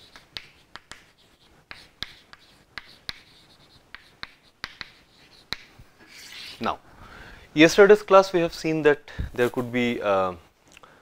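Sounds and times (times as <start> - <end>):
chalk tapping on chalkboard: 0.0 - 6.6.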